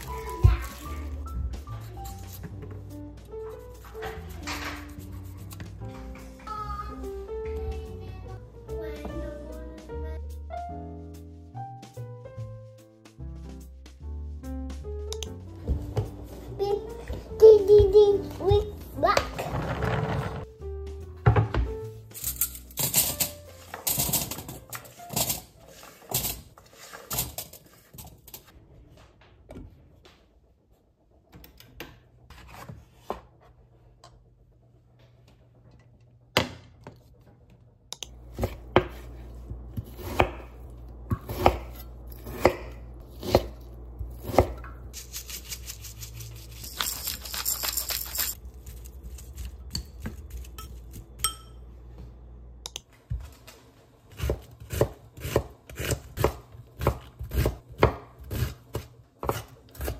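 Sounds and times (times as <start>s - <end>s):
cookware clattering: 21.3s - 28.4s
low steady hum: 27.3s - 59.9s.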